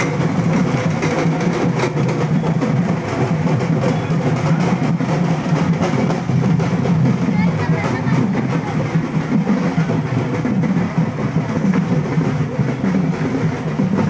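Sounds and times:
loud dense drumming: 0.0s - 14.0s.

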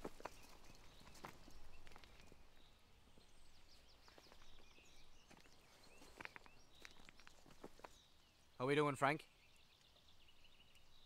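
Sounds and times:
soft steps on gravel: 0.0s - 8.1s
faint bird chirps: 0.0s - 11.0s.

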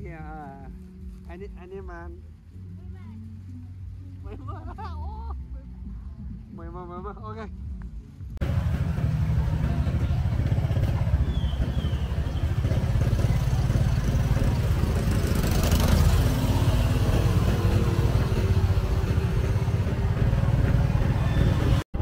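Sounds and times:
motorbike engine running: 8.4s - 22.0s
passing motorbike: 8.4s - 22.0s.

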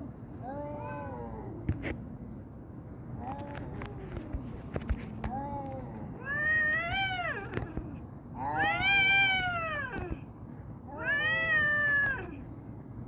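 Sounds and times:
cats yowling: 6.2s - 10.2s, 10.9s - 12.4s.

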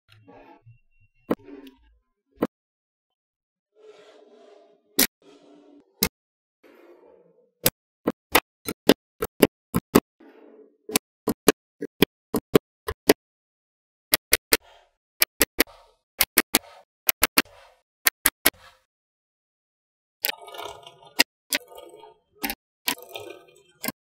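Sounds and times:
faint scraping: 3.8s - 6.0s
magnetic balls clicking together: 20.2s - 24.0s.

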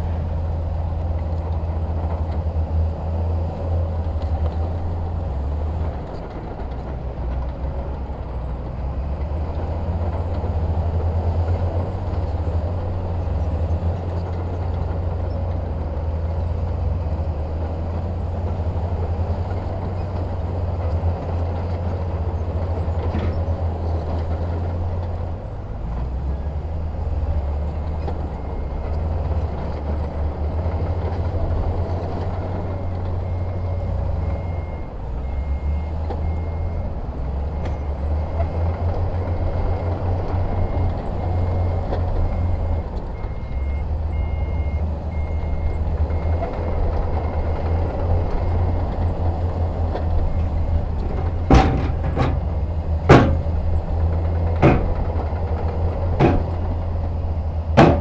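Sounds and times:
diesel machinery engines rumbling: 0.0s - 58.0s
back-up alarm beeping: 40.7s - 46.4s.

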